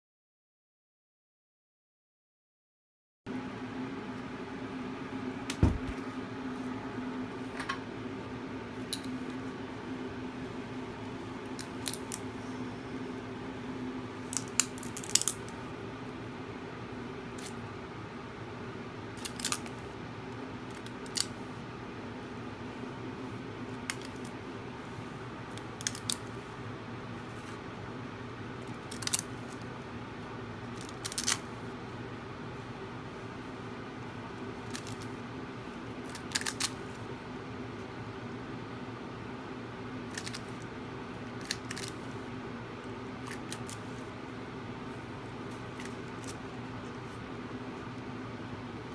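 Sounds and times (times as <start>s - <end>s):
steady low hum: 3.3s - 48.9s
lizard crunching egg crackles: 11.6s - 12.3s, 14.3s - 15.6s, 19.2s - 19.8s, 25.6s - 26.3s, 28.6s - 29.4s, 30.7s - 31.5s, 34.6s - 35.1s, 36.0s - 36.8s, 40.1s - 40.6s, 41.3s - 42.1s, 43.2s - 43.8s.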